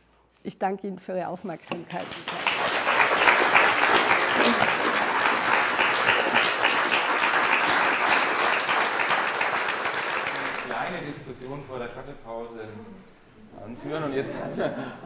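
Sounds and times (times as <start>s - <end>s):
audience applauding: 2.0s - 11.0s.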